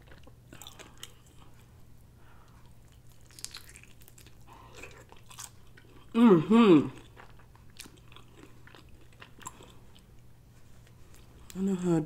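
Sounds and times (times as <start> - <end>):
chewing and biting fried chicken: 2.5 - 6.1, 7.0 - 10.2.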